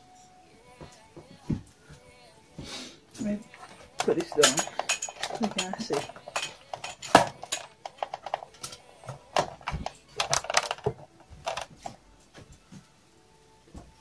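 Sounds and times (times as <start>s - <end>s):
clicks and knocks of small objects: 3.5s - 12.0s.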